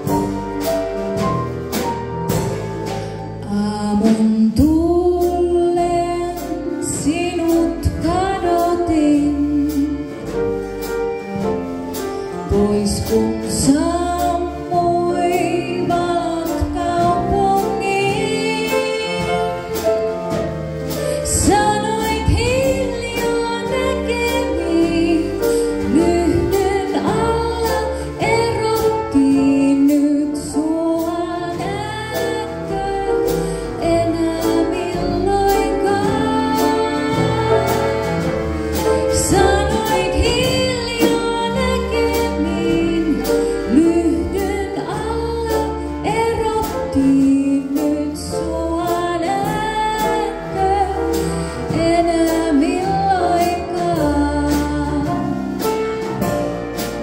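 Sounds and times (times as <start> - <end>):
live band with drums and bass: 0.0 - 57.0
woman singing with vibrato: 12.5 - 19.7, 21.2 - 38.2, 39.1 - 55.2.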